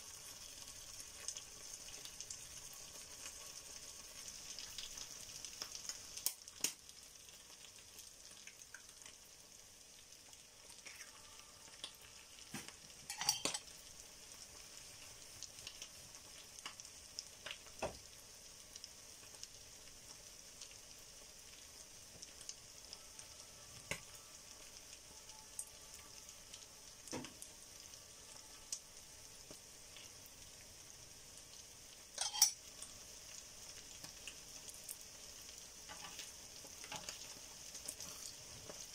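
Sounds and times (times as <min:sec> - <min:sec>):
meat sizzling in a frying pan: 0:00.0 - 0:38.9
metal spoon scraping a pan: 0:13.0 - 0:13.7, 0:32.2 - 0:32.6.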